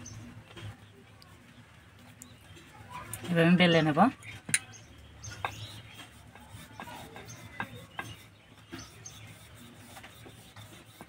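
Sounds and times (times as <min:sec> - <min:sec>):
rolling pin rubbing on dough: 0:05.3 - 0:11.0.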